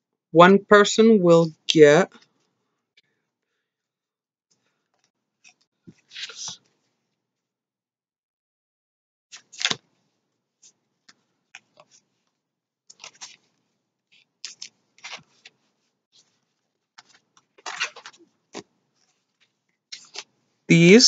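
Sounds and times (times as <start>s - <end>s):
trading cards being handled: 5.4s - 6.6s, 12.9s - 13.6s, 14.2s - 20.3s.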